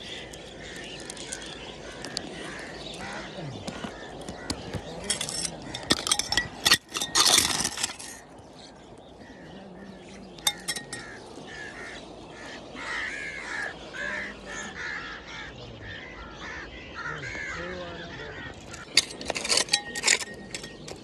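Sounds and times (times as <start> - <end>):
metal blade scraping gravel: 5.0 - 8.2, 18.7 - 21.0.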